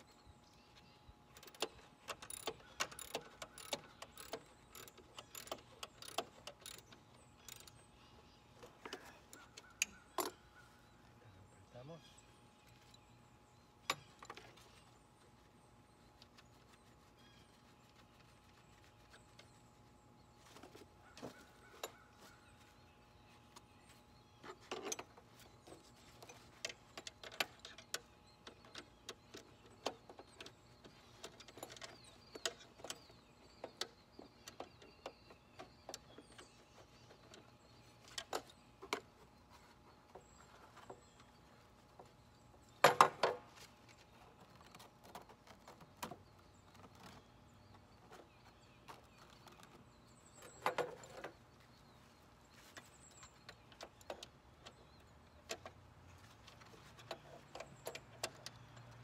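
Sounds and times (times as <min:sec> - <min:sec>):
metallic clicks of hand tools: 0:01.3 - 0:07.8.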